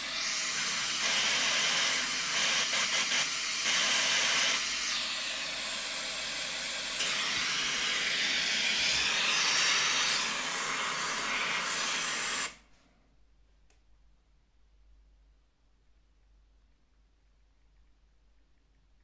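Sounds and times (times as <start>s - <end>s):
pink noise hiss from speakers: 0.0s - 12.7s.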